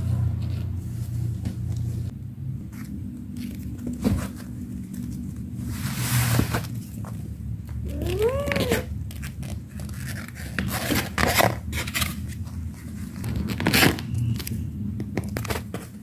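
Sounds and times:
kitten meowing: 0:07.8 - 0:08.9.

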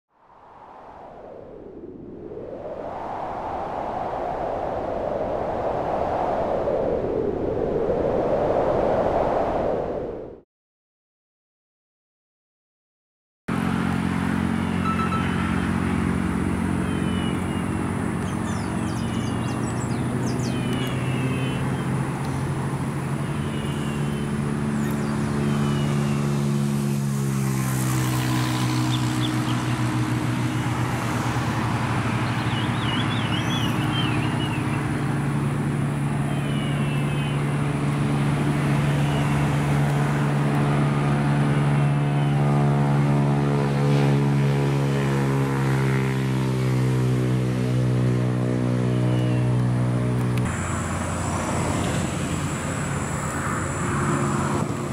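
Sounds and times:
motor engine humming: 0:13.5 - 0:54.9
small birds chirping: 0:16.8 - 0:27.1, 0:28.6 - 0:30.0, 0:32.0 - 0:35.1, 0:36.1 - 0:37.7.

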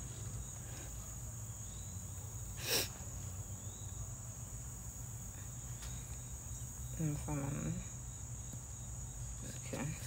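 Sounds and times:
insect chorus chirring: 0:00.0 - 0:10.0
breathy hiss: 0:02.5 - 0:03.1.

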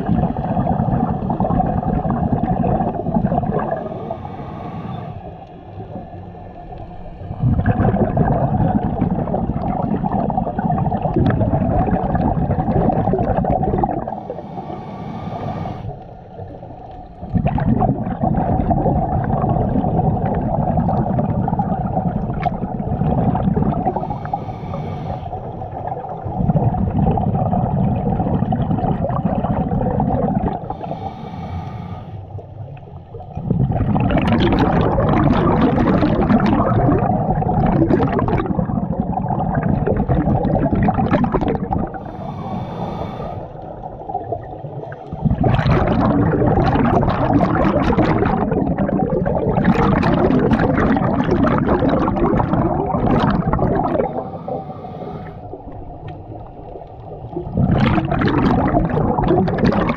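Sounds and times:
gurgling exhaled bubbles: 0:00.0 - 0:59.9
hissing regulator inhalations: 0:03.7 - 0:05.9, 0:14.0 - 0:16.4, 0:23.8 - 0:25.9, 0:30.5 - 0:32.6, 0:41.9 - 0:44.0, 0:54.0 - 0:55.9.

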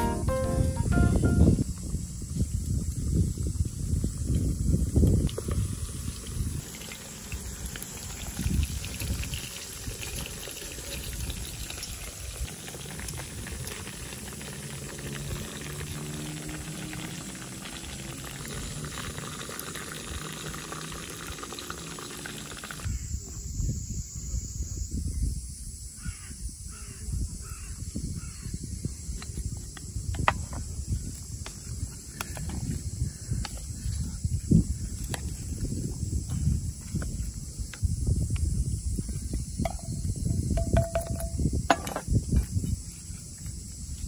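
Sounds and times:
fish frying in hot oil: 0:05.2 - 0:22.9.

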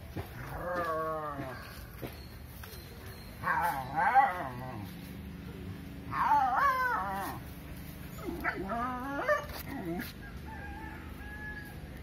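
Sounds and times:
dog giving crying barks: 0:08.2 - 0:10.1.

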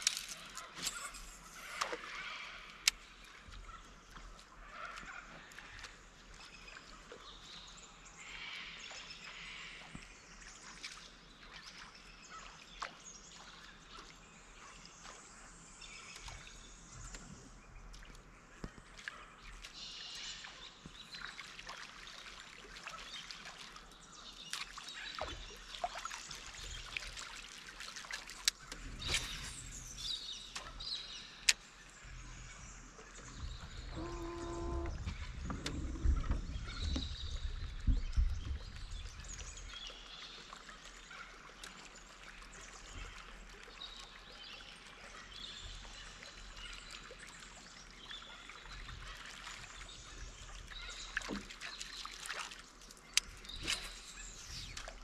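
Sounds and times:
water lapping around boat: 0:00.0 - 0:55.0
birds calling: 0:28.6 - 0:38.7
low rumble: 0:33.2 - 0:39.2.

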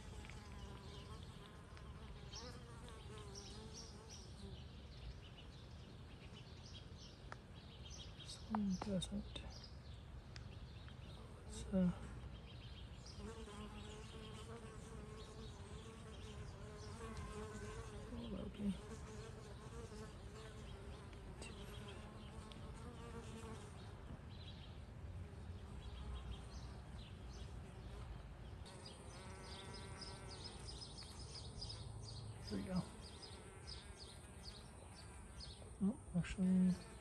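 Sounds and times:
honey bees buzzing: 0:00.0 - 0:04.6, 0:13.1 - 0:23.9, 0:25.8 - 0:35.6.

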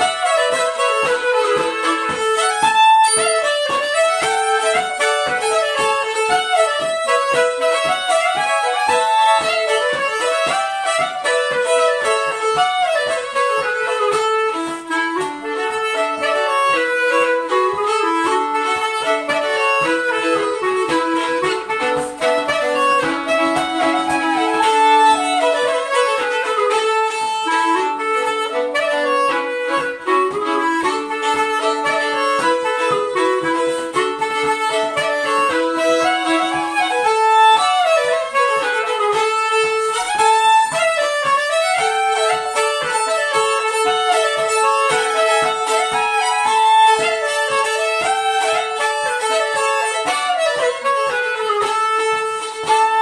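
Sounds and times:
clarinet playing: 0:00.0 - 0:53.0
fiddle playing: 0:00.0 - 0:53.0
long steady held note: 0:00.0 - 0:53.0.

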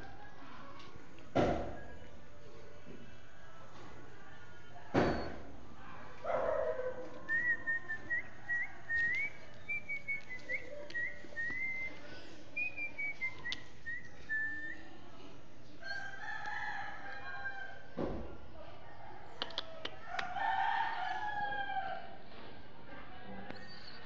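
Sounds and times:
thump: 0:01.3 - 0:01.8, 0:04.9 - 0:05.4, 0:18.0 - 0:18.3.

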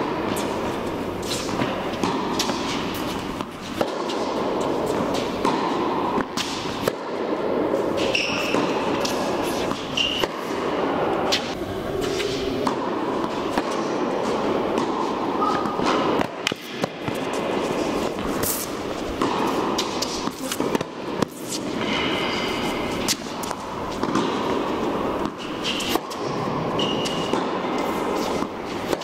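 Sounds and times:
racket striking ball: 0:00.0 - 0:29.0
ball bouncing: 0:01.4 - 0:07.2, 0:12.6 - 0:22.2, 0:23.1 - 0:29.0
shoe squeaks: 0:08.0 - 0:10.5, 0:15.4 - 0:15.9, 0:25.4 - 0:26.0, 0:26.8 - 0:27.3.

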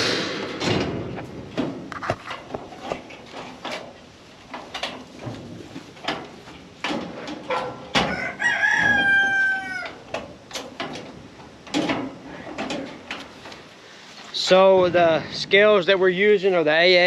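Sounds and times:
metal gate knocks and rattles: 0:00.0 - 0:13.4
rooster crowing: 0:07.9 - 0:10.0.

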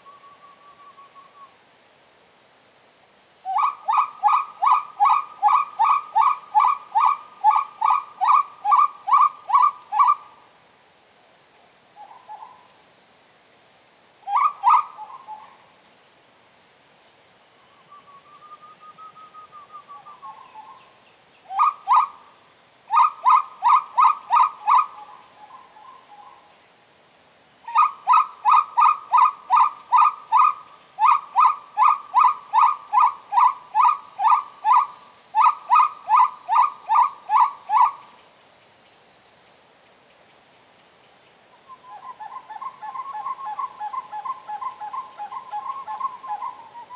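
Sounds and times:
whistled bird calls: 0:00.0 - 0:01.6, 0:14.3 - 0:15.6, 0:17.6 - 0:22.2, 0:27.7 - 0:38.2, 0:41.6 - 0:46.9.

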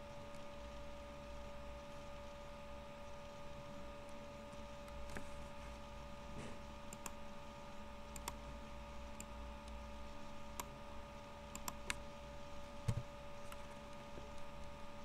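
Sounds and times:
faint electrical hum: 0:00.0 - 0:15.0
computer mouse clicks: 0:06.9 - 0:07.2, 0:08.1 - 0:08.4, 0:10.5 - 0:10.7, 0:11.5 - 0:12.0.

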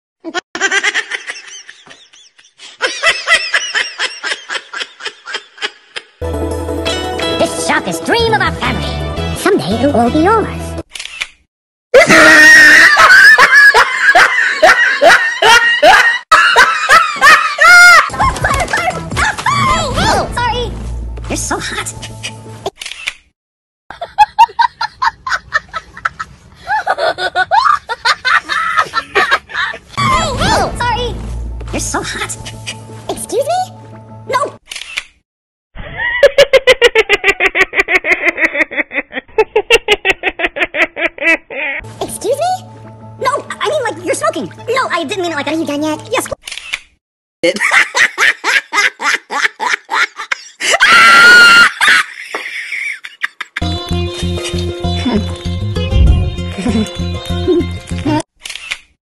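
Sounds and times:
person laughing heartily: 0:00.2 - 0:06.2, 0:12.0 - 0:19.6, 0:23.9 - 0:30.0, 0:35.8 - 0:41.8, 0:47.4 - 0:55.4, 0:56.3 - 0:58.2.

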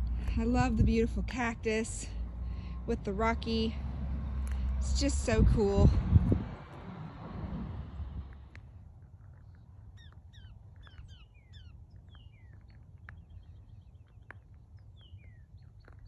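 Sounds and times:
low rumble: 0:00.0 - 0:09.6
bird chirping: 0:09.3 - 0:16.0.

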